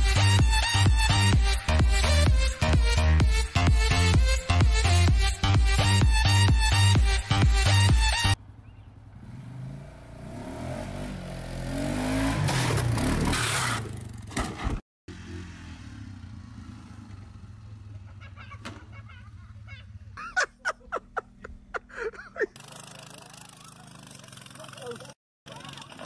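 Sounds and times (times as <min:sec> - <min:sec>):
quad bike engine revving: 0:08.2 - 0:14.3, 0:15.1 - 0:20.2, 0:22.5 - 0:26.0.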